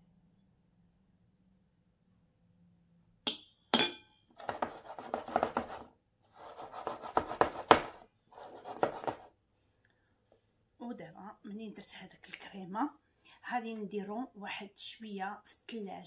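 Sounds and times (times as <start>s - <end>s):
metal cake pan rattling on table: 4.4s - 9.3s.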